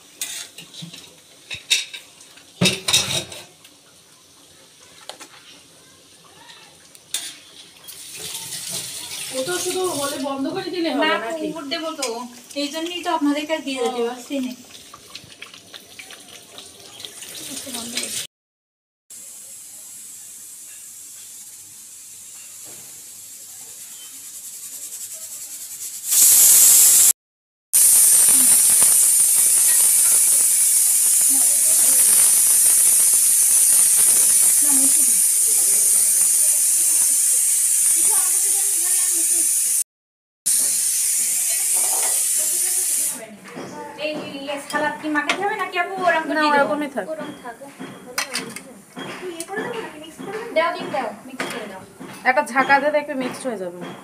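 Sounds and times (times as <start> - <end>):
metal spatula scraping a wok: 0.1 - 0.6, 7.1 - 7.5
high-pitched hiss: 26.0 - 27.2, 27.8 - 39.8, 40.5 - 43.2.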